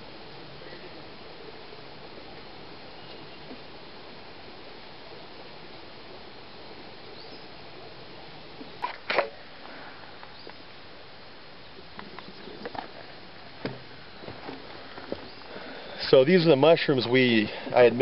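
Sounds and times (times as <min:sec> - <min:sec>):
steady background hiss: 0:00.0 - 0:18.0.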